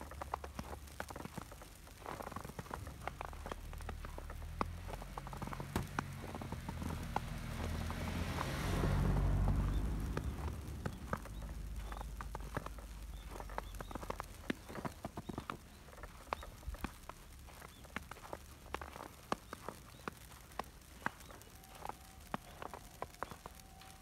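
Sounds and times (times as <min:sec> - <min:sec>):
car driving on snowy road: 0:00.0 - 0:24.0
footsteps crunching in snow: 0:00.0 - 0:24.0.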